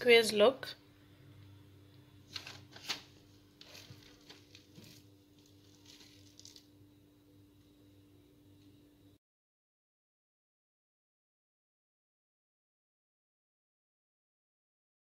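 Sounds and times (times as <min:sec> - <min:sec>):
faint steady hum: 0:00.0 - 0:09.2.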